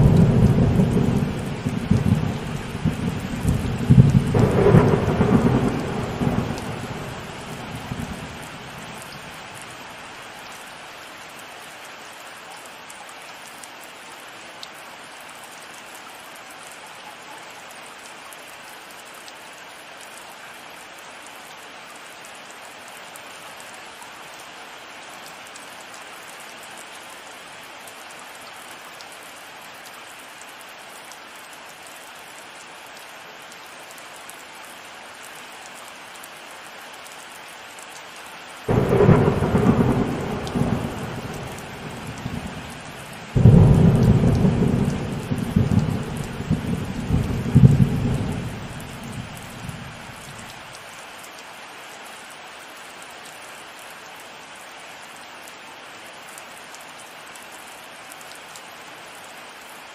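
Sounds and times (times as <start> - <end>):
thunder rumbling: 0.0 - 8.9, 38.7 - 50.3
heavy rain: 0.0 - 59.9.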